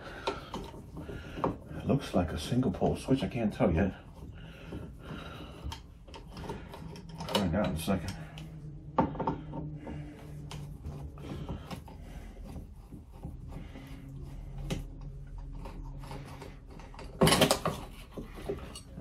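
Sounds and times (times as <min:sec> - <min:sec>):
soft rubbing and scraping: 0:00.0 - 0:19.0.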